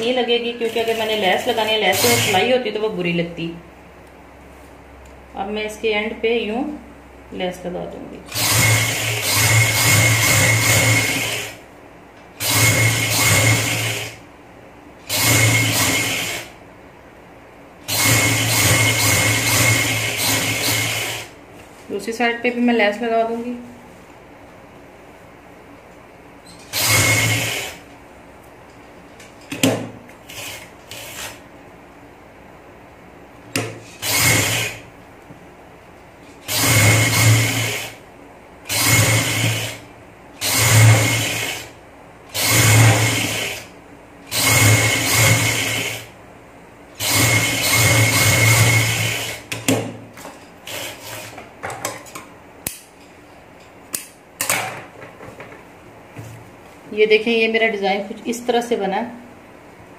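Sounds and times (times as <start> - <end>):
sewing machine stitching: 0.7 - 2.5, 8.3 - 11.6, 15.1 - 16.5, 17.9 - 21.3, 26.6 - 27.8, 33.8 - 34.8, 36.4 - 37.9, 38.7 - 39.8, 40.4 - 41.7, 42.3 - 43.7, 44.3 - 46.0, 47.0 - 49.4.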